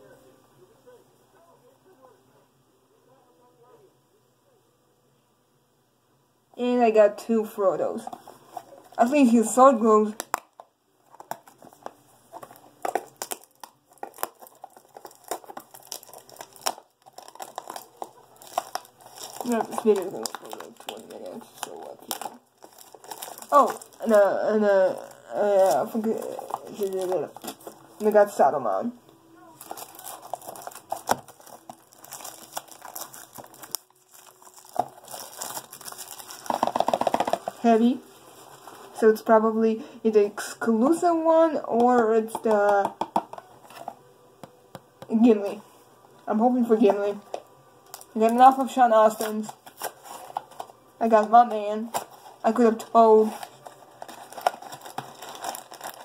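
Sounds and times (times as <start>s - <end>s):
toy packaging crinkling: 7.9s - 28.5s, 29.6s - 39.0s, 47.2s - 56.0s.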